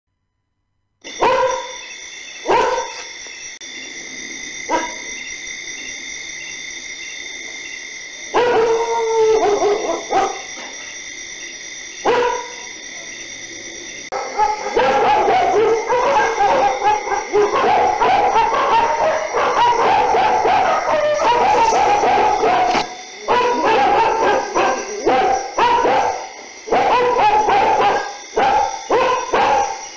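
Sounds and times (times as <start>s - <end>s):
dogs barking: 1.1s - 3.2s, 4.7s - 5.2s, 8.3s - 11.0s, 11.9s - 13.4s, 14.1s - 29.9s.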